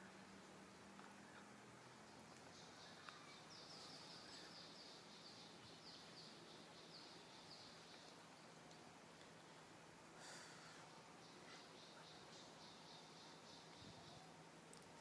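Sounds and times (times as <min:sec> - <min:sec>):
faint outdoor hiss: 0:00.0 - 0:15.0
bird chirping: 0:02.1 - 0:08.5, 0:11.2 - 0:14.4.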